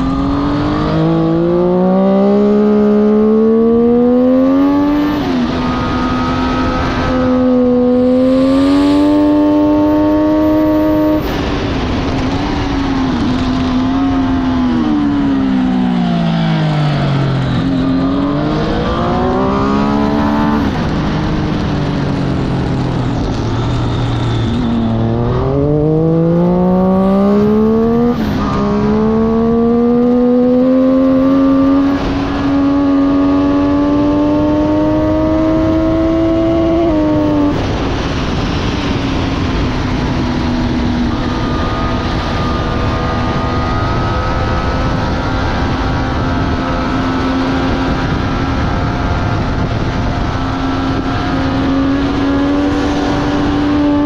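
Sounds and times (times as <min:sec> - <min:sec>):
motorcycle engine revving: 0:00.0 - 0:54.0
steady rushing noise: 0:04.3 - 0:54.0.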